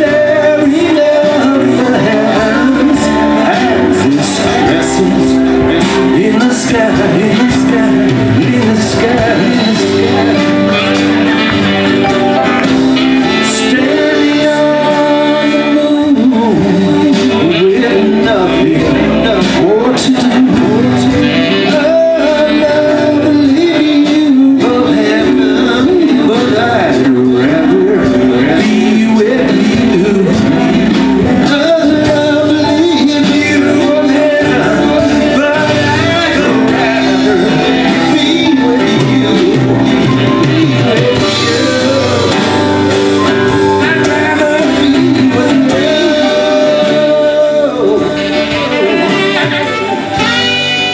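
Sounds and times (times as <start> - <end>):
acoustic guitar: 0.0 - 50.9
drums: 0.0 - 50.9
electric guitar: 0.0 - 50.9
keyboard: 0.0 - 50.9
pitch-bending melody line: 0.0 - 50.9
saxophone long notes: 9.4 - 19.2, 20.8 - 26.2, 26.9 - 50.9.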